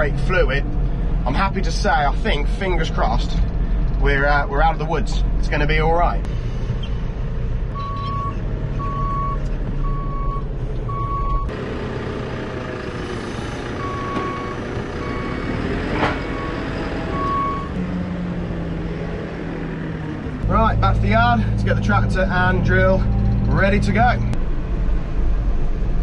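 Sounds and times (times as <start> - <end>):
engine running: 0.0 - 26.0
reversing alarm beeps: 7.8 - 11.5, 13.8 - 15.6, 17.2 - 17.8.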